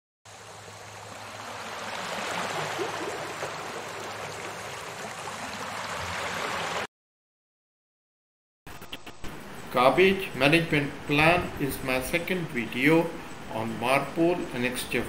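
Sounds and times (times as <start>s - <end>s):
water rushing: 0.3s - 6.9s.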